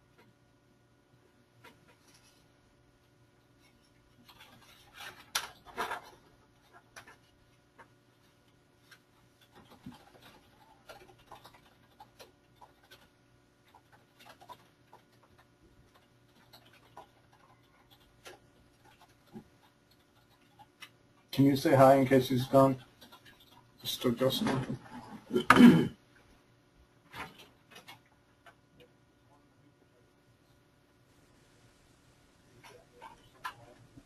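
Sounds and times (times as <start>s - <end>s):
small clicks and rustles: 1.6s - 21.3s, 22.8s - 23.9s.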